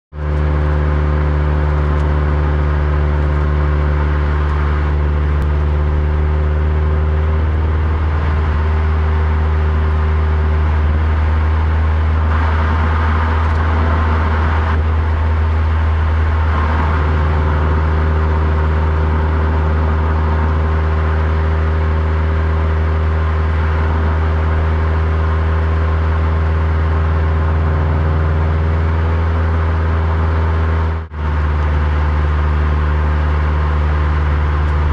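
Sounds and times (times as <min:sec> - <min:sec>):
car engine drone: 0:00.1 - 0:34.9
tyre and road noise: 0:00.1 - 0:34.9.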